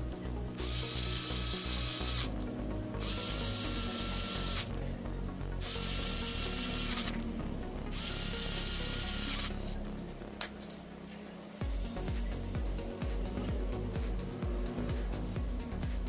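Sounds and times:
background music: 0.0s - 16.0s
electric screwdriver whining: 0.6s - 2.4s, 3.0s - 4.8s, 5.6s - 7.2s, 7.9s - 9.8s.

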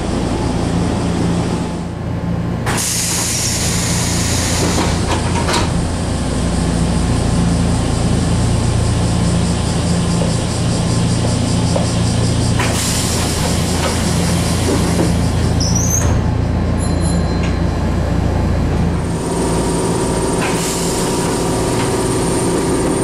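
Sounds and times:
low hum of train equipment: 0.0s - 23.0s
sliding door air hiss: 2.7s - 16.5s, 19.0s - 23.0s.

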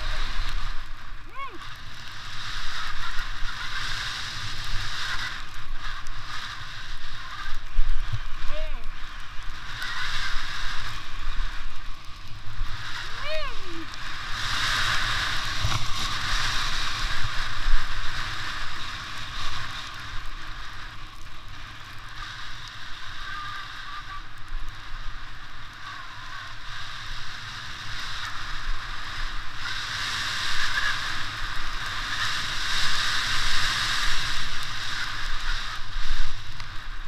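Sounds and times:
snowboard scraping on snow: 0.0s - 37.0s.

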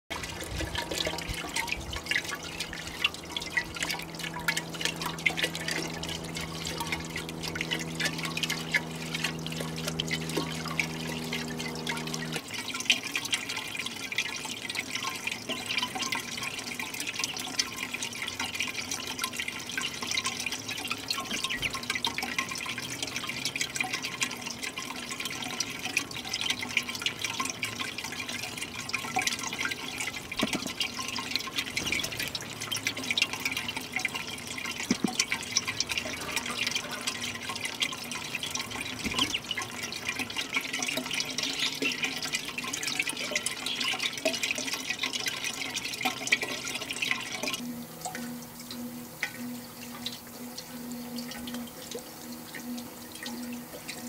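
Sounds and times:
fountain water trickling: 0.1s - 54.0s.

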